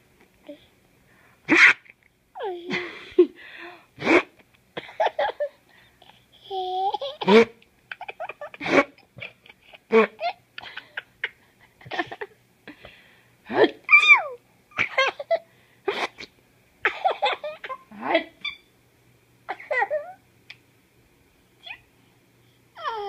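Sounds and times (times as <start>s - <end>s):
infant giggling and laughing: 6.4s - 12.4s, 14.7s - 15.4s, 19.6s - 20.2s.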